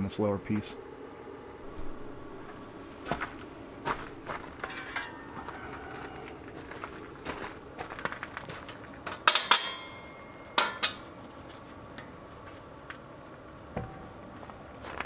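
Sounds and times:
metal parts clinking: 0:04.6 - 0:05.4, 0:08.6 - 0:11.1.

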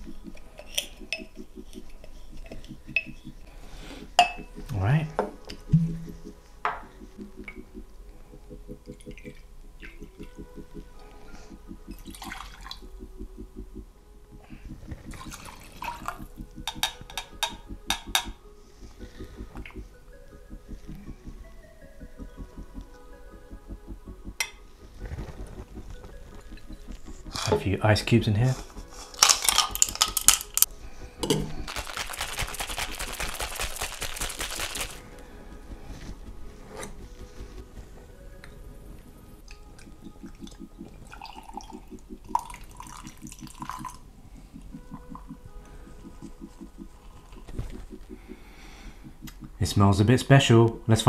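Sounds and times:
background music with steady beat: 0:00.0 - 0:51.0
shaker rattling with ice: 0:28.9 - 0:30.7, 0:31.6 - 0:35.1
ice cubes clinking into metal shaker: 0:29.1 - 0:30.6, 0:31.3 - 0:35.0.

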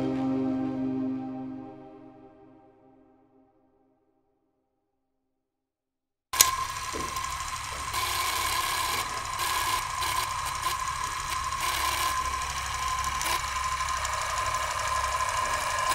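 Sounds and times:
film projector clattering: 0:06.4 - 0:15.9.

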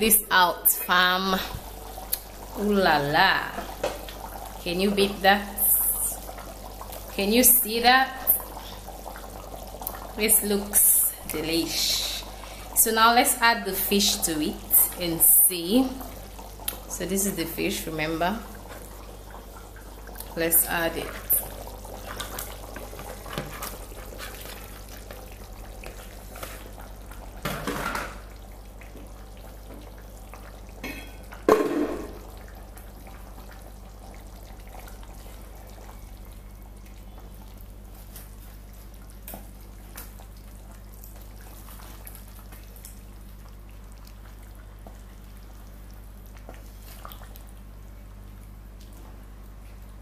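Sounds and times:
sauce simmering and bubbling: 0:00.7 - 0:50.0
small crackles: 0:21.1 - 0:31.4, 0:32.3 - 0:50.0.

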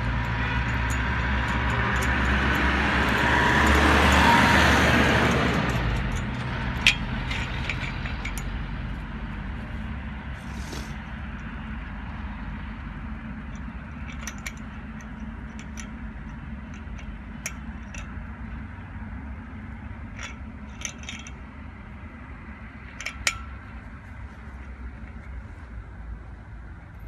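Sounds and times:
steady low rumble: 0:00.0 - 0:27.0
metal clip clicks and scrapes: 0:00.1 - 0:08.6, 0:20.1 - 0:21.4, 0:22.9 - 0:23.6.

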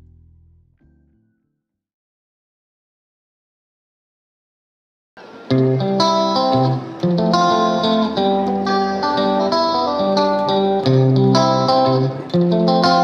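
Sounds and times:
plucked instrumental music: 0:05.2 - 0:13.0.

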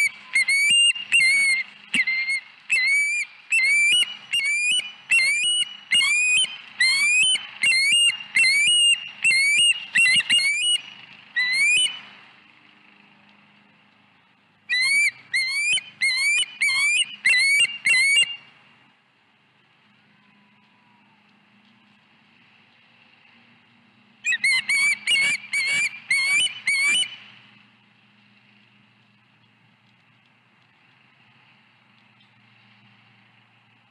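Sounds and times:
bird whistled chirps: 0:00.0 - 0:12.1, 0:14.7 - 0:18.5, 0:24.3 - 0:27.3.

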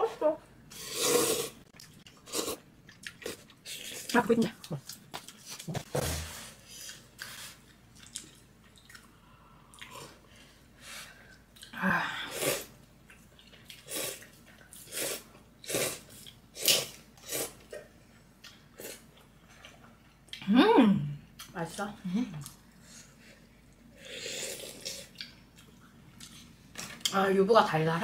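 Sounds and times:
wet chewing noises: 0:01.6 - 0:05.9, 0:06.7 - 0:10.0.

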